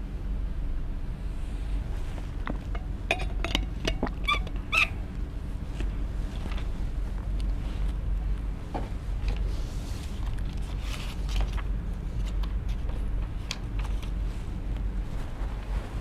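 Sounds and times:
steady low hum: 0.0 - 16.0
rustles: 5.6 - 16.0.

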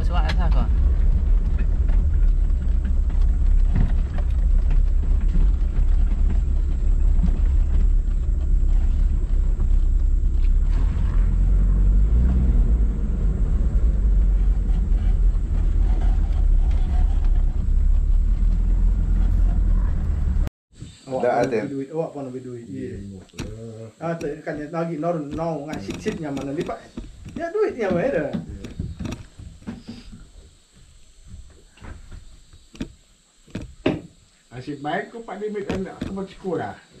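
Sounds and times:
vehicle engine and road noise: 0.0 - 20.5, 25.3 - 27.4.

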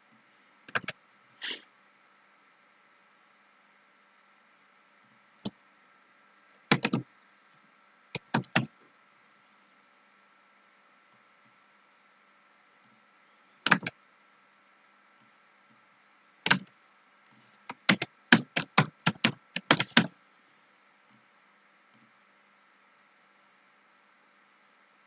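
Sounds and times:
computer keyboard typing: 0.7 - 1.0, 6.7 - 7.0, 8.2 - 8.7, 13.7 - 13.9, 16.5 - 16.7, 17.7 - 20.1.

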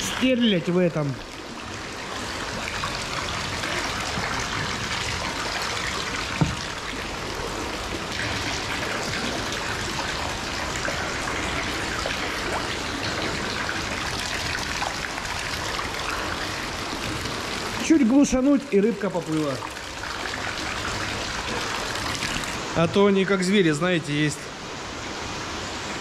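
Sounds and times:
water pouring into tank: 0.0 - 22.7.

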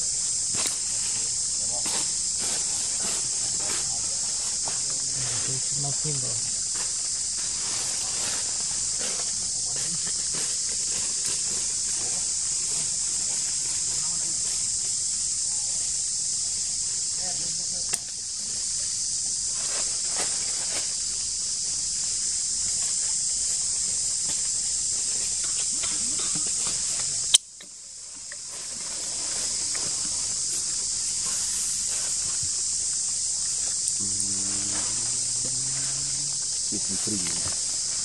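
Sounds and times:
insects droning: 0.0 - 38.0
low voice-like sound: 34.0 - 36.1.

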